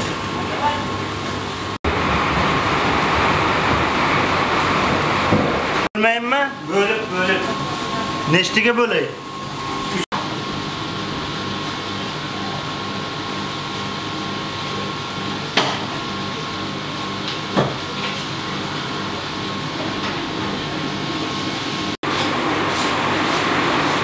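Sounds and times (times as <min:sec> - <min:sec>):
machine hum: 0:00.0 - 0:24.0
rumbling noise: 0:01.9 - 0:05.9.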